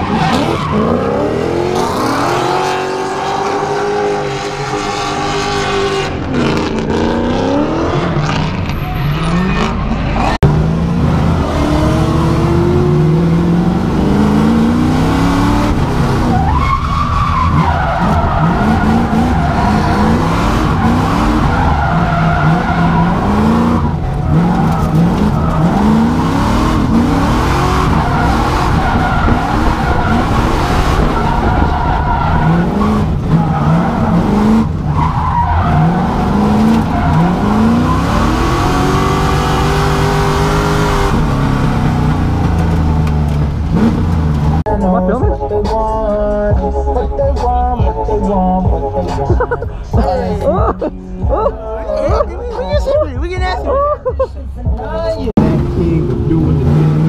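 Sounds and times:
car engine revving hard: 0.0s - 44.7s, 55.4s - 57.0s
tyres screeching: 12.5s - 44.7s.

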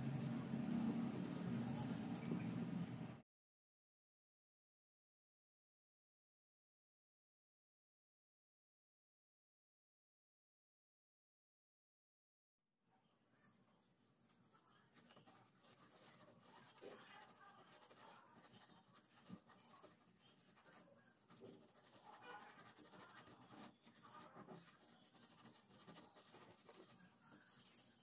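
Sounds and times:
fingertips scrubbing gritty paste: 15.0s - 28.0s.

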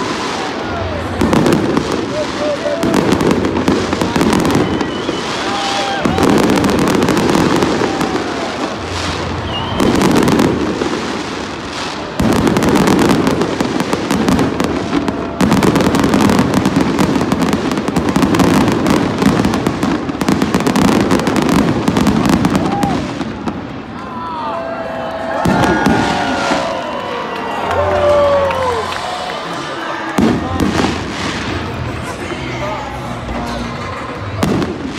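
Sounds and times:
fireworks bursts and crackle: 0.0s - 34.9s
fireworks whistles: 1.2s - 17.4s.

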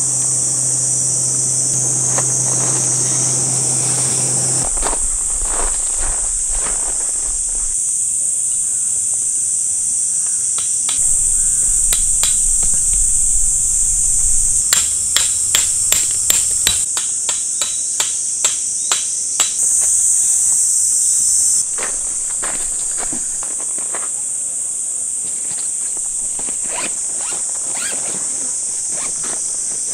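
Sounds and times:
high insect chorus: 0.0s - 29.9s
tent peg hammered into gravel: 10.6s - 12.8s, 14.7s - 19.6s.

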